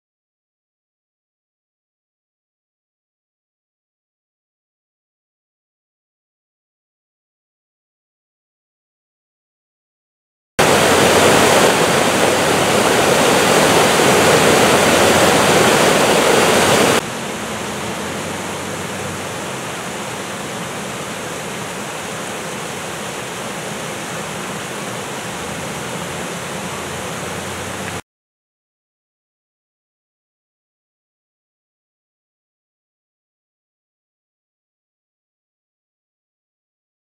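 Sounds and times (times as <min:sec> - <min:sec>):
water rushing over waterfalls: 0:10.6 - 0:28.0.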